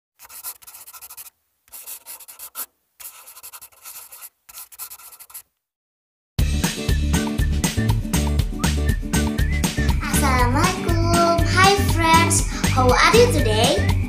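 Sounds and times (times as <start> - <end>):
pen scratching on paper: 0.2 - 5.5
loud music: 6.4 - 14.0.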